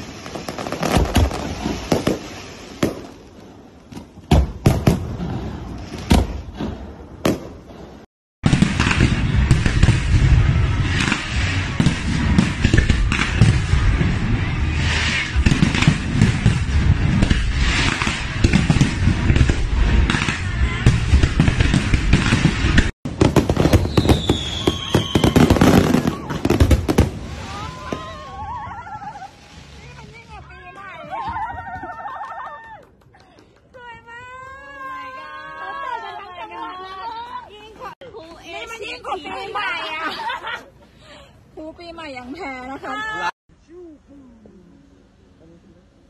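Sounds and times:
fireworks bangs and crackling: 0.0 - 32.3
falling whistle: 23.8 - 26.1.

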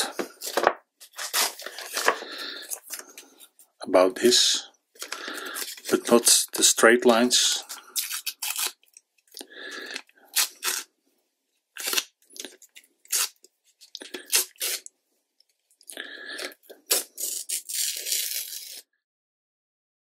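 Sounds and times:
masking tape tearing: 0.4 - 2.2, 7.8 - 8.8, 10.0 - 10.9, 11.8 - 13.4, 14.2 - 14.9, 16.8 - 18.8.

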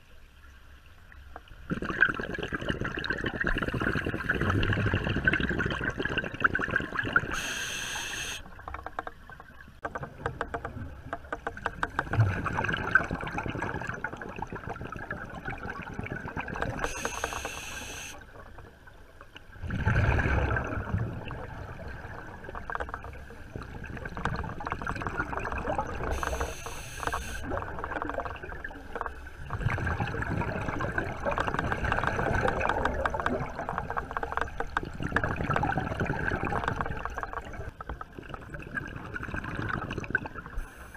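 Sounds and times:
underwater crackling and bubbling: 0.0 - 40.9
short hiss: 7.4 - 8.4, 16.9 - 18.2, 26.2 - 27.4
water surge: 19.6 - 22.4.

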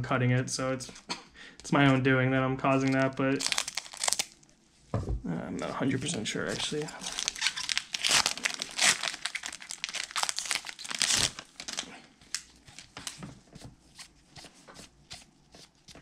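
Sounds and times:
foil wrapper crinkling: 2.8 - 4.4, 6.0 - 13.2.

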